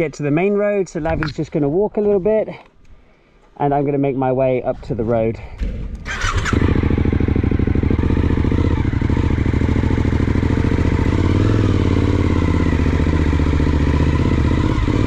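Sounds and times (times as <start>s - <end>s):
motorcycle engine running: 5.6s - 15.0s.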